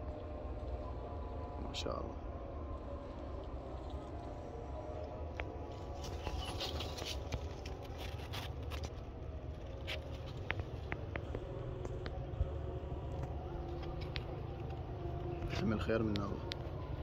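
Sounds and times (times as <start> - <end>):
leaves rustling against camera: 5.5 - 11.3.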